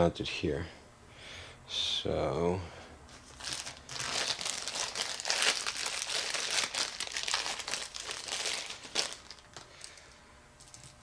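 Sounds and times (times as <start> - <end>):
plastic bag crinkling: 3.1 - 10.1.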